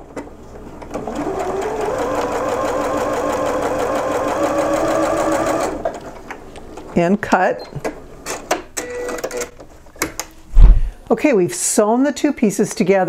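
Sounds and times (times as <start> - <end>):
sewing machine stitching: 0.8 - 5.9.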